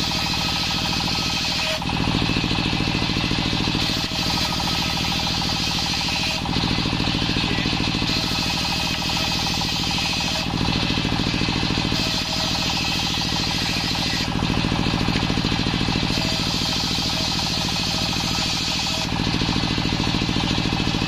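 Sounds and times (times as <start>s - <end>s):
table saw engine pulsing: 0.0s - 21.0s
saw blade hissing through wood: 15.8s - 19.1s.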